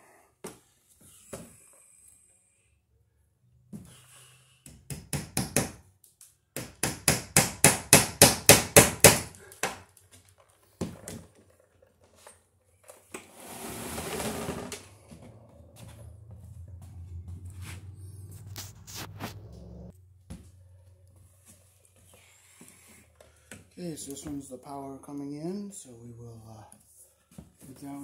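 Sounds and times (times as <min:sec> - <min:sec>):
hammer striking staple into wood: 0:04.7 - 0:05.8, 0:06.6 - 0:09.8.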